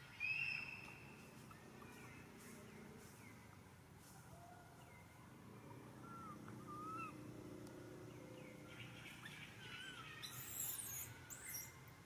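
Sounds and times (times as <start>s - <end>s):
birds whistling in trees: 0.0s - 3.4s, 5.8s - 7.3s, 8.2s - 11.8s.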